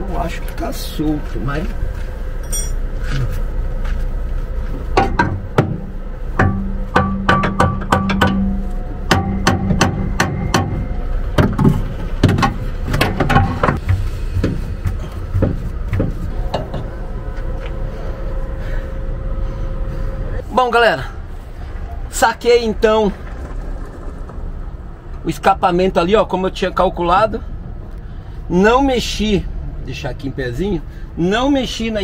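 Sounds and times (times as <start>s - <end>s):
hand tools knocking on metal pipe: 6.4s - 10.8s.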